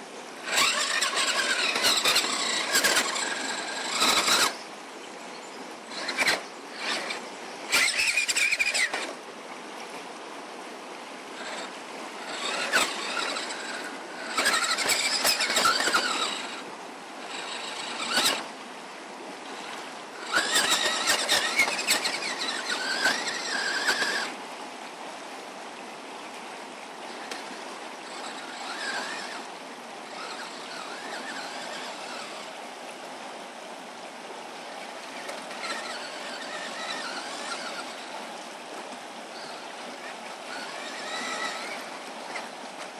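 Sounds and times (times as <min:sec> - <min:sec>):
electric motor whining: 0:00.4 - 0:04.6, 0:05.9 - 0:09.2, 0:11.3 - 0:18.6, 0:19.4 - 0:24.4, 0:27.1 - 0:32.6, 0:34.9 - 0:38.4, 0:39.3 - 0:42.6
tyres scraping on rock: 0:00.4 - 0:04.6, 0:05.9 - 0:09.2, 0:11.4 - 0:16.6, 0:17.2 - 0:18.5, 0:19.5 - 0:24.4, 0:27.1 - 0:29.5, 0:30.1 - 0:32.5, 0:35.2 - 0:38.1.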